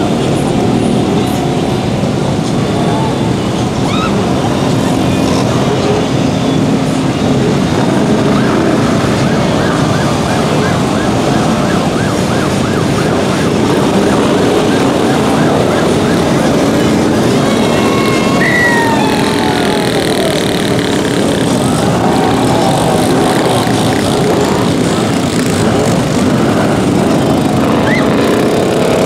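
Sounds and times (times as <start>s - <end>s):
off-road vehicle engines running: 0.0s - 29.0s
siren-like warble: 8.1s - 25.6s.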